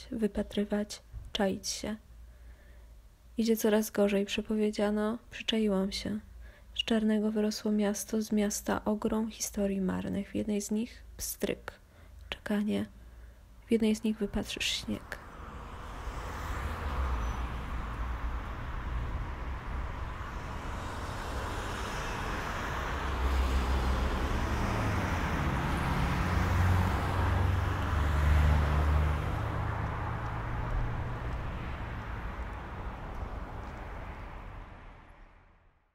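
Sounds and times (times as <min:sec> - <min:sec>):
low engine rumble: 0:13.0 - 0:35.4
passing vehicles hiss: 0:14.4 - 0:35.5.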